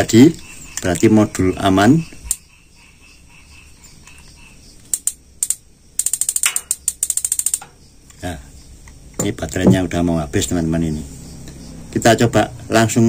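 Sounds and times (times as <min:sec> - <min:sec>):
electronic spark igniter snapping: 0:04.9 - 0:07.7.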